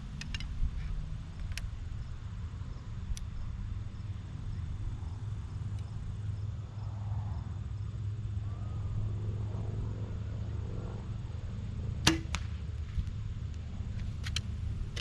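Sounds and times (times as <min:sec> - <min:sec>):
steady low rumble: 0:00.0 - 0:15.0
bow string snapping: 0:12.1 - 0:12.6.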